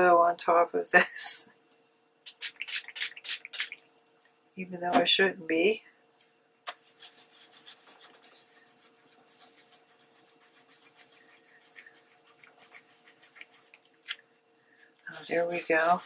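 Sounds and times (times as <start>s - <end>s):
cloth scrubbing paper: 6.8s - 13.8s, 15.1s - 16.0s.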